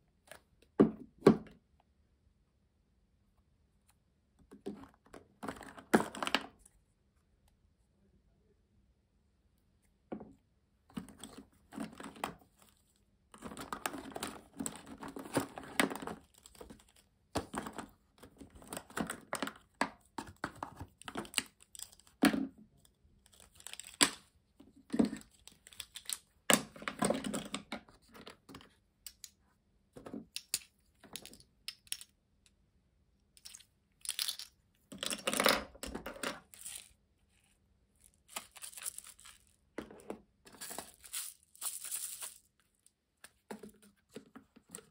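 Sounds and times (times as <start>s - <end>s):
plastic rustling and crinkling: 36.4s - 39.7s, 40.5s - 44.9s.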